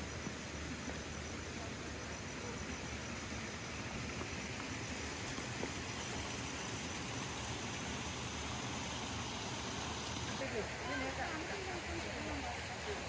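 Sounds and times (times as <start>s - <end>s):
outdoor garden ambience hiss: 0.0s - 13.0s.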